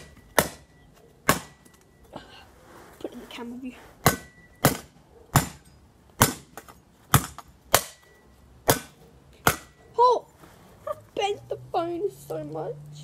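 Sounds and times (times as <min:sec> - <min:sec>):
metal spade smacking phone: 0:00.0 - 0:01.9, 0:04.0 - 0:09.8.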